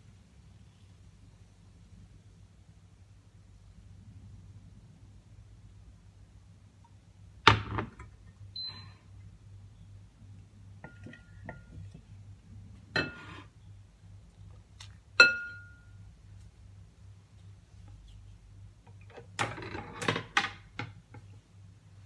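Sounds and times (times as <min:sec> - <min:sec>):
faint low hum: 0:00.0 - 0:22.0
cookware clanking together: 0:13.0 - 0:13.5.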